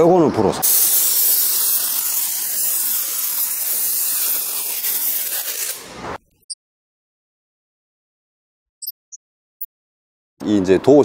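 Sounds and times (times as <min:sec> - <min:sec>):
compressed air blow gun hissing: 0:00.6 - 0:05.9.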